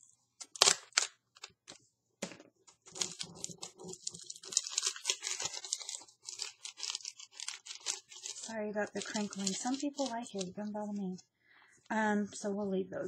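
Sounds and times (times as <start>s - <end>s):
plastic packet crinkling: 0.4s - 1.8s, 2.7s - 10.8s.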